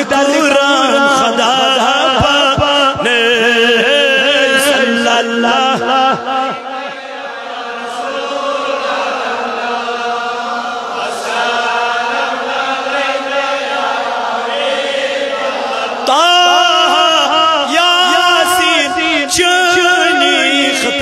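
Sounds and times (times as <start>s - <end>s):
voices chanting unaccompanied: 0.0s - 21.0s
man singing solo: 16.0s - 21.0s.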